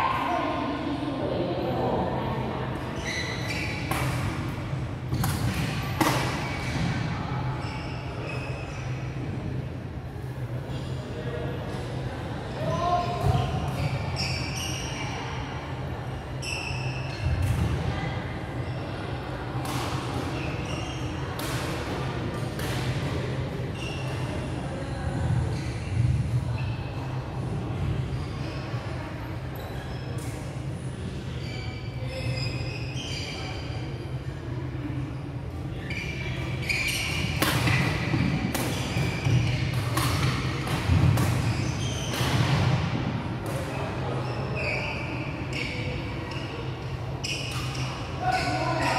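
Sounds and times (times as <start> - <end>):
low hum of hall: 0.0 - 48.9
sneakers squeaking on wooden court: 3.0 - 9.2, 12.8 - 15.2, 16.4 - 17.7, 19.7 - 21.8, 23.7 - 24.4, 31.3 - 33.8, 35.1 - 48.9
rackets hitting shuttlecocks: 37.2 - 42.8.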